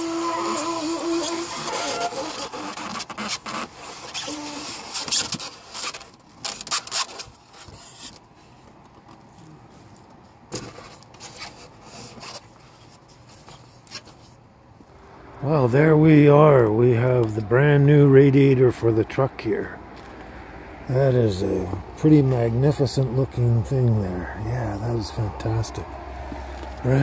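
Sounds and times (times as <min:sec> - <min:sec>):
cardboard and foam rubbing: 0:00.0 - 0:08.8, 0:10.6 - 0:14.4.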